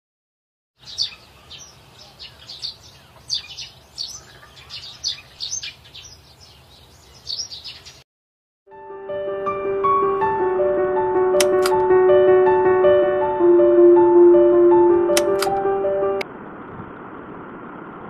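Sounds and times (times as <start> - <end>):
birds chirping: 0.8 - 8.0.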